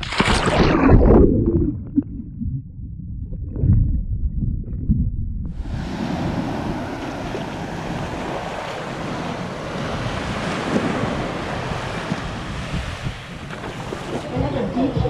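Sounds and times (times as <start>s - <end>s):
surf breaking on a beach: 5.6s - 15.0s.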